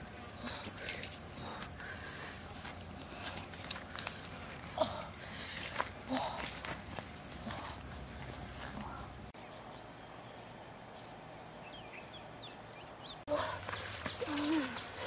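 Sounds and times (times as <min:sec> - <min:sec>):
insect high-pitched drone: 0:00.0 - 0:09.3.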